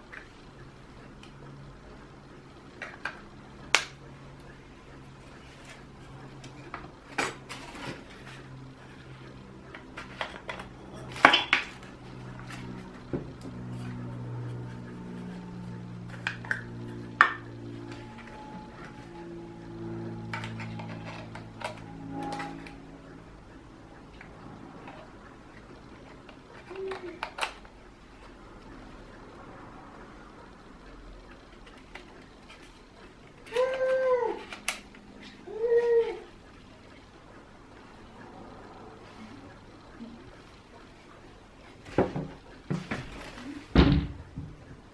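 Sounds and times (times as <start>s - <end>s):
soft background music: 13.6s - 25.9s.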